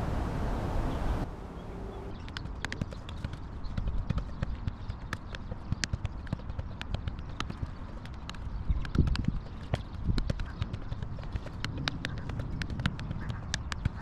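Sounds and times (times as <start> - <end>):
football taps off foot: 2.3 - 14.0
steady low rumble: 8.5 - 14.0.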